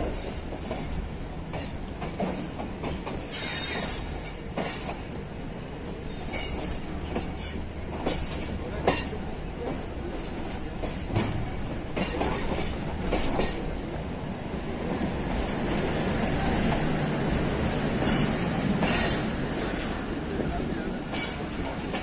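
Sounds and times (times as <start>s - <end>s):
wheels clanking over rail joints: 0.0s - 5.2s, 5.9s - 13.9s, 15.3s - 22.0s
train wheels rumbling: 0.0s - 22.0s
high wheel squeal: 3.3s - 4.1s.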